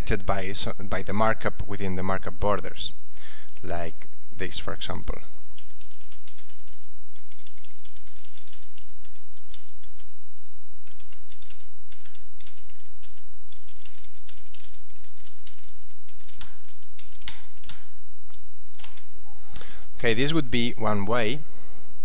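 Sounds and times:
steady low hum: 0.0 - 22.0
typing on computer keyboard: 5.5 - 19.1.

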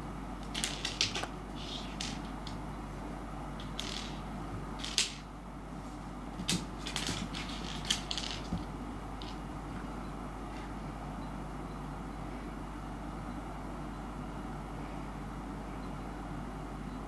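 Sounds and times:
seed skittering on wooden floor: 0.4 - 2.6, 6.4 - 8.7.

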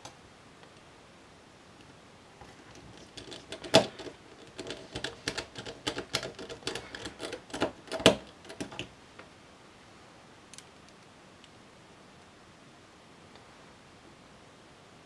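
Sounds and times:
screwdriver turning small screws: 2.7 - 8.9.

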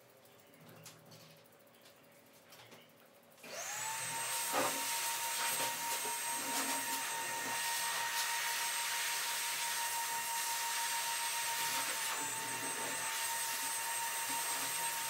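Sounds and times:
electric blower motor whine: 3.4 - 15.0.

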